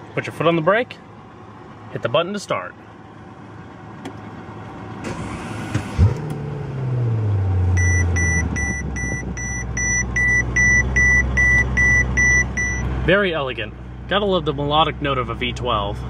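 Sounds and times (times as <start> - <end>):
car engine starting and idling: 0.0 - 16.0
dashboard warning chime beeping: 7.8 - 12.9.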